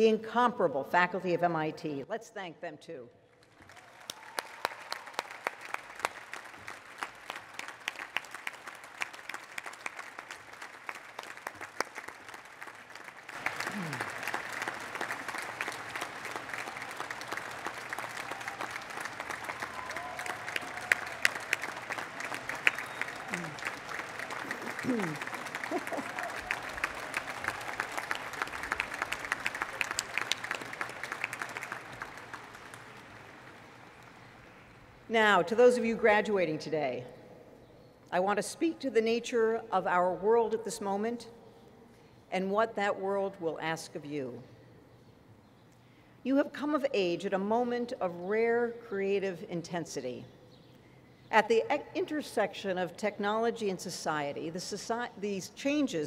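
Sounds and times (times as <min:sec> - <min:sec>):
crowd applauding: 0:03.4 - 0:34.7.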